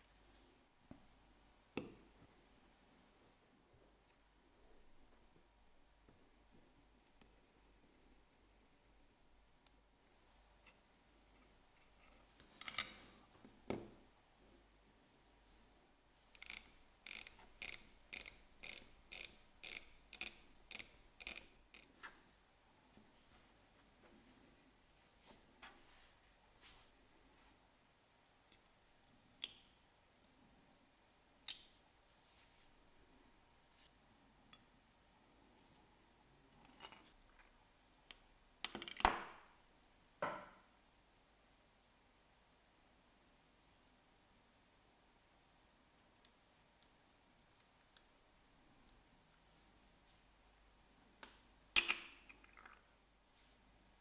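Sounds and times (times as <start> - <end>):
watch bezel ratchet clicks: 16.4 - 21.9.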